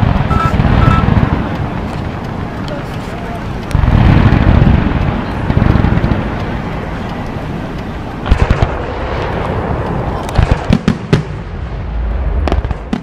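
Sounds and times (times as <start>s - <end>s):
firework shells bursting: 0.0s - 11.4s
steady rumble of fireworks: 0.0s - 13.0s.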